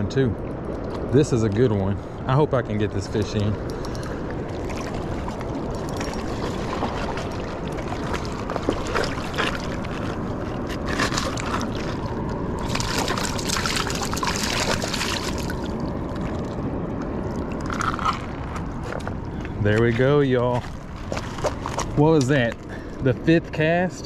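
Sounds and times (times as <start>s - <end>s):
wind: 0.0s - 24.0s
river water rushing: 0.6s - 19.3s
water splashing: 0.6s - 23.0s.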